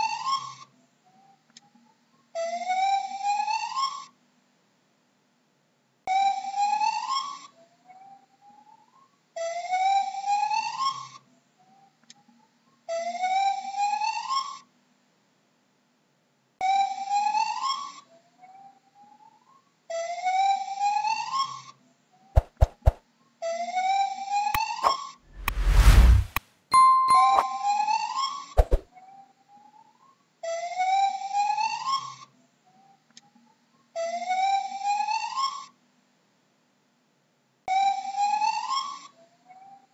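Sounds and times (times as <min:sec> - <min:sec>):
sharp click: 0:24.6 - 0:26.4.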